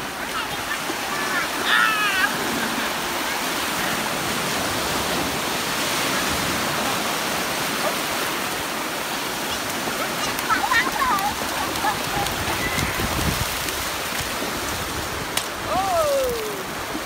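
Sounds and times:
surf breaking in shallows: 0.0s - 17.0s
child crying out: 15.7s - 16.7s.

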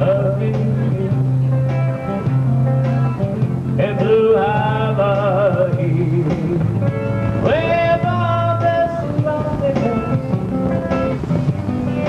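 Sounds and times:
man singing with vibrato: 0.0s - 1.3s, 3.7s - 10.4s
guitar accompaniment: 0.0s - 12.0s.

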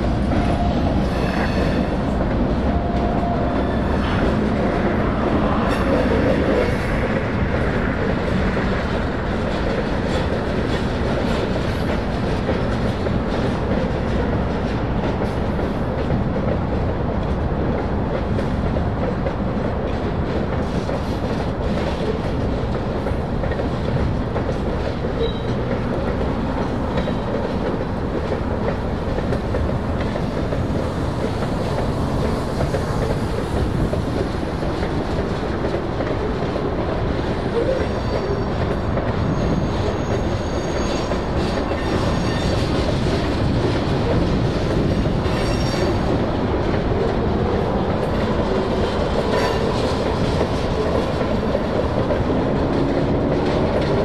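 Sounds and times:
freight train wheels on rails: 0.0s - 54.0s
high wheel squeal: 39.2s - 42.8s, 45.3s - 46.0s.

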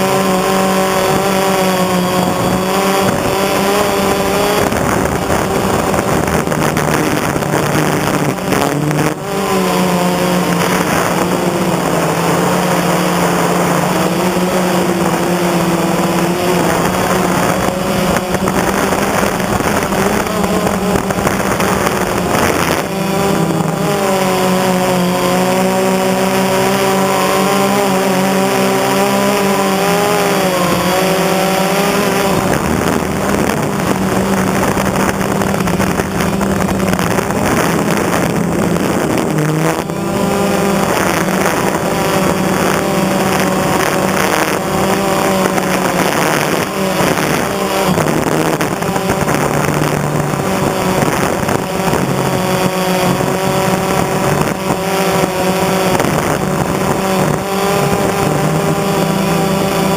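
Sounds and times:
drone motors buzzing: 0.0s - 59.9s.

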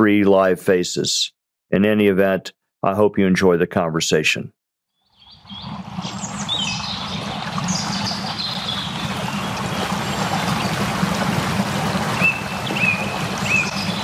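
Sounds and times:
birds chirping: 5.0s - 14.0s
stream trickling: 5.0s - 14.0s.

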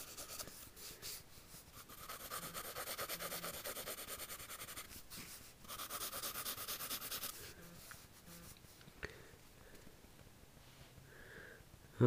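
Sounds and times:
pencil scratching on paper: 0.0s - 8.8s.

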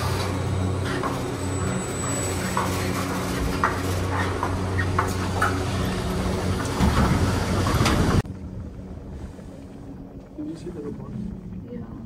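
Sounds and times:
lift machinery humming and rattling: 0.0s - 8.9s.

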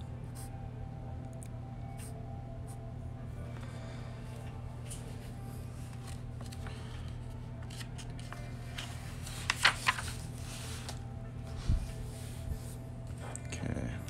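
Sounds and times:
low steady hum: 0.0s - 14.0s
paper page rustling: 4.8s - 11.1s.

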